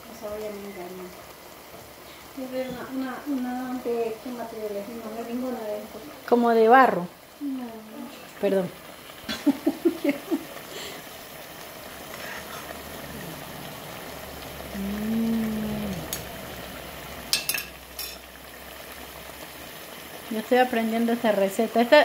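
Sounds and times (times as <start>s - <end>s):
food sizzling in hot oil: 0.0s - 22.0s
person humming: 14.6s - 16.3s
person making short vocal sounds: 14.7s - 16.1s.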